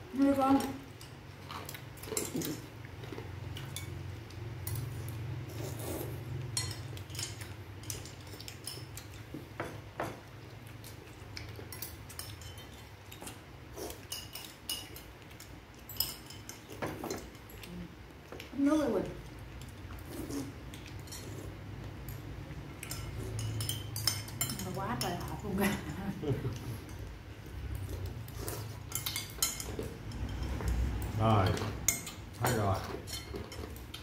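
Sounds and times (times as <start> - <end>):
spoons clinking on bowls: 6.4 - 10.2, 11.5 - 13.3, 13.9 - 17.7, 20.8 - 27.1, 28.8 - 34.0.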